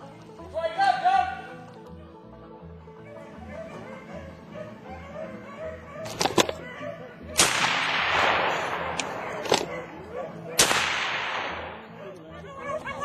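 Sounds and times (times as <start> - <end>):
loud gunshots with echo: 7.4 - 10.0, 10.6 - 12.0
sharp clicks: 7.4 - 10.0.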